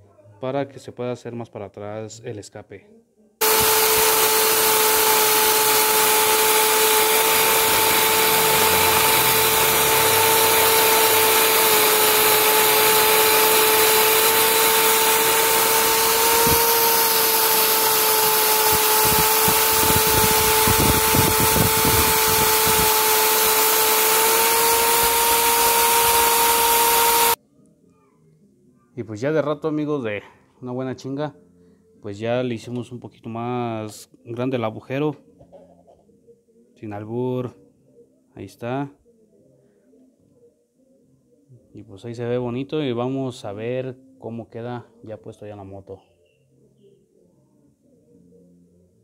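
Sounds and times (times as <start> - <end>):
electric drill whining: 3.4 - 27.4.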